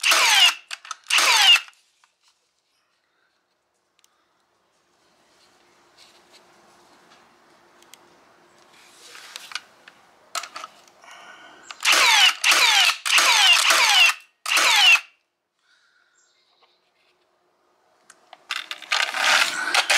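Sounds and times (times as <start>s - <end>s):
nail gun shots: 11.8s - 15.1s.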